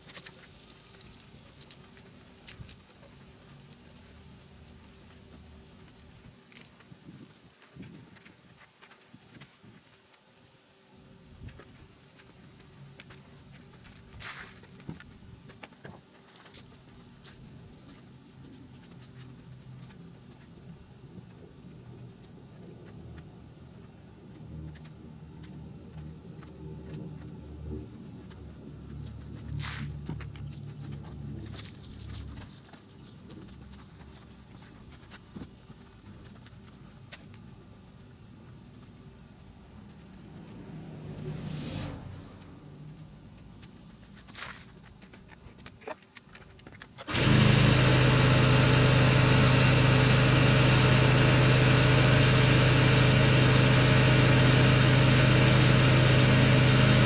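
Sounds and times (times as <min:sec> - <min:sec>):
wash mitt ticks and patter: 0:21.8 - 0:37.5
brief loud swish: 0:40.9 - 0:42.5.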